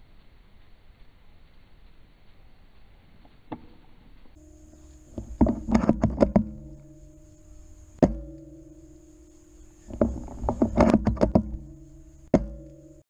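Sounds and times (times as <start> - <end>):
sustained music tones: 4.3 - 13.0
drum hits: 8.0 - 9.1, 9.9 - 13.0.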